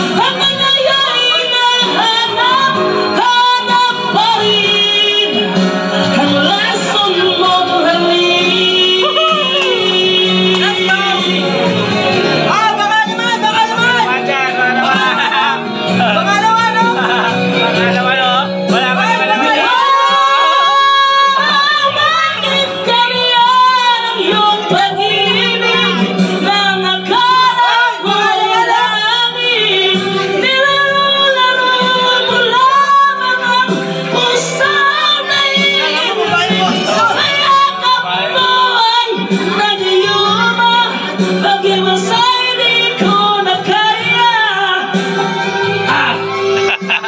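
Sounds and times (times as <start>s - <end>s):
karaoke backing track: 0.0s - 47.0s
man singing into microphone: 12.5s - 44.9s.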